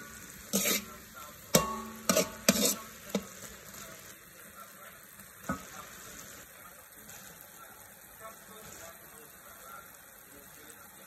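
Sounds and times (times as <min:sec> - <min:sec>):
metal spatula scraping wok: 0:00.0 - 0:03.8
meat sizzling in oil: 0:00.0 - 0:11.0.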